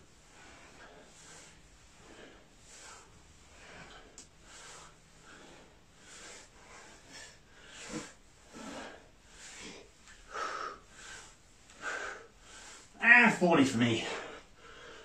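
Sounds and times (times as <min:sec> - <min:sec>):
man breathing hard: 0:00.0 - 0:13.0, 0:14.0 - 0:15.0.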